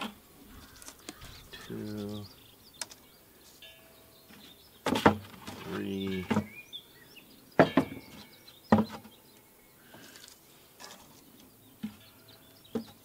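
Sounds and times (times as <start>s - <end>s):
plastic buckets knocking on wood: 4.8s - 6.5s, 7.6s - 9.1s.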